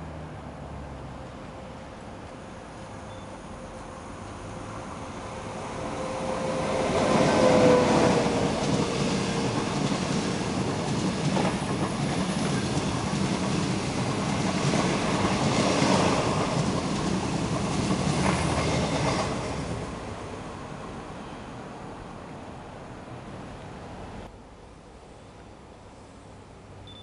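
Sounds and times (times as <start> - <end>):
electric locomotive whine: 1.3 - 24.3
passenger coaches rumbling: 3.4 - 24.3.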